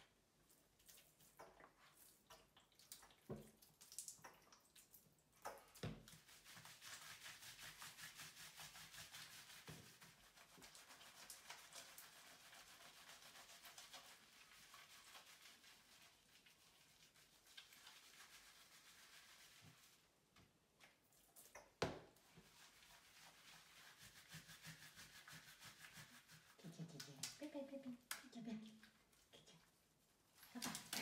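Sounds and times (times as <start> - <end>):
water drips: 0.5 - 6.3.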